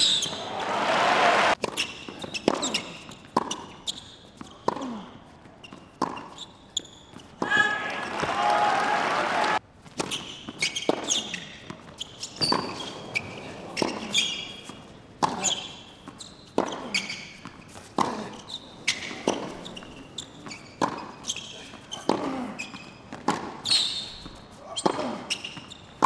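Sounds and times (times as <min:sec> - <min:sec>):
shoes squeaking on court: 0:00.0 - 0:00.8, 0:01.5 - 0:08.4, 0:09.8 - 0:26.0
tennis ball struck by rackets: 0:23.1 - 0:23.7.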